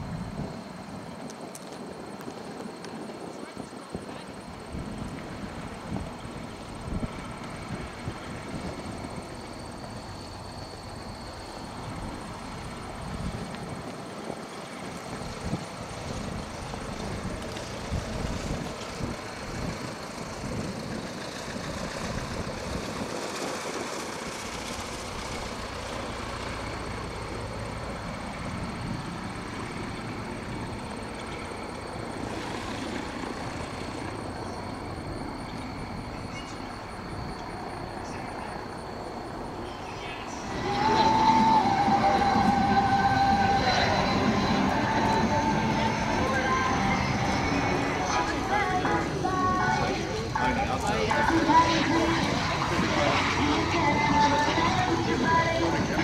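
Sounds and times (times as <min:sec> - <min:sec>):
aircraft engine drone: 0:00.0 - 0:56.0
thin high whine: 0:22.0 - 0:56.0.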